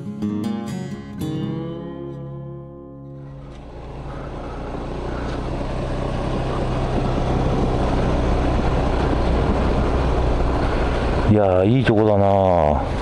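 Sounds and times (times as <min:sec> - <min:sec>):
scooter engine running: 0:03.2 - 0:11.4
wind and road noise: 0:03.2 - 0:13.0.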